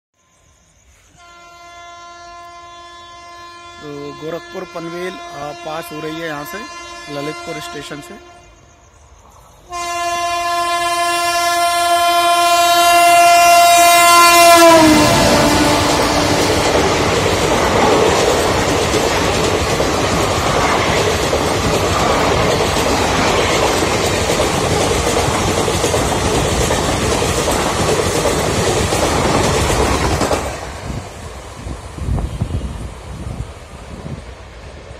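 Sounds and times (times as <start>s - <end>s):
train horn blast: 1.1s - 8.6s, 9.7s - 17.2s
train wheels on rails: 12.2s - 34.9s.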